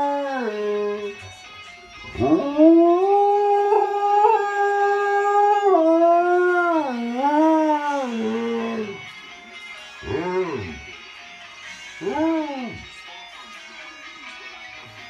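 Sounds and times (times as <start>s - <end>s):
dog howling: 0.0s - 1.2s, 2.0s - 9.1s, 10.0s - 10.9s, 12.0s - 12.9s
music: 0.0s - 15.0s.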